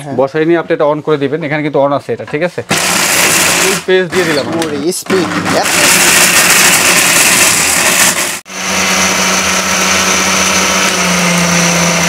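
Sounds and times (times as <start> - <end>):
food processor motor whirring: 2.7 - 12.0.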